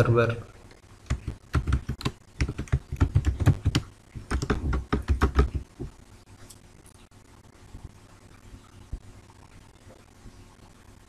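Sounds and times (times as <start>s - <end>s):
keyboard typing: 1.0s - 5.9s.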